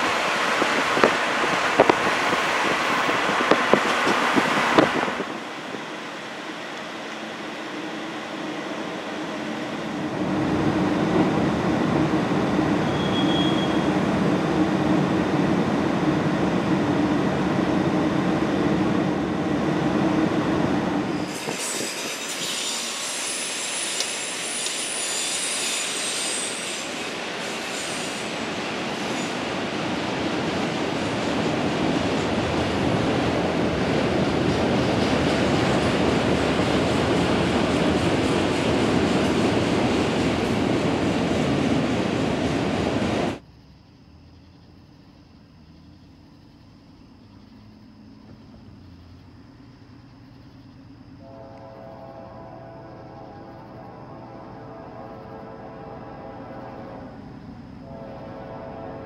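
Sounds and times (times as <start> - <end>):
rail cars rolling past: 0.0 - 43.4, 45.6 - 59.0
high-pitched wheel squeal: 12.8 - 13.9, 21.1 - 28.4.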